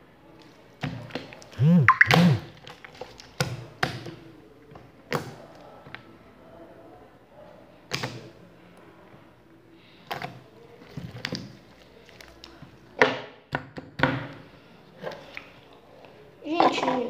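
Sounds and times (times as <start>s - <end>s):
slime squeezed with wet pops: 1.1s - 3.6s.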